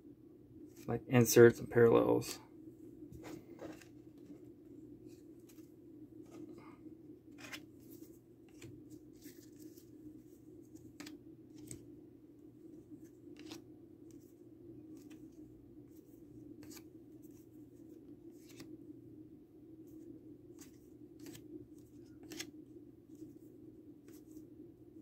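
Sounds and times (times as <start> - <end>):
trading cards ticking and slapping: 13.3 - 13.6, 20.6 - 22.5.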